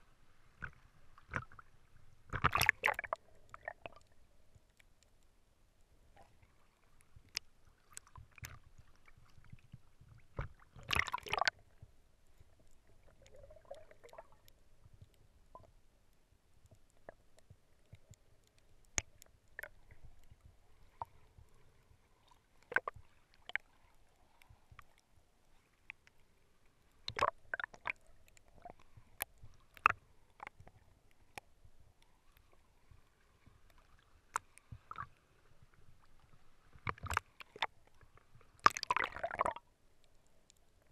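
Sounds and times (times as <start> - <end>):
faint underwater noise: 0.0 - 40.9
sharp clicks and pops: 2.3 - 4.1, 16.6 - 20.4, 27.0 - 31.5, 38.6 - 39.6
rush of water: 10.4 - 11.5.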